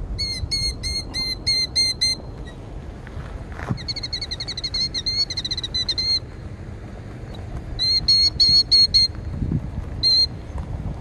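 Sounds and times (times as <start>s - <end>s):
bird trilled alarm calls: 0.2s - 2.6s, 3.7s - 6.3s, 7.3s - 9.2s, 10.0s - 10.4s.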